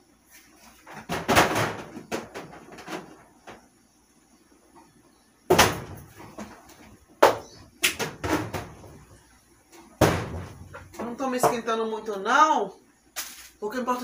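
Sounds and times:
cupboard knocks and clatters: 0:00.9 - 0:03.7, 0:07.2 - 0:09.0, 0:10.0 - 0:11.6.

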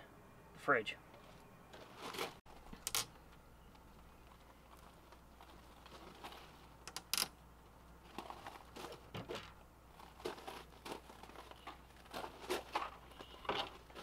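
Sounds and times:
plastic cover rustling: 0:04.7 - 0:06.7, 0:08.0 - 0:14.0.

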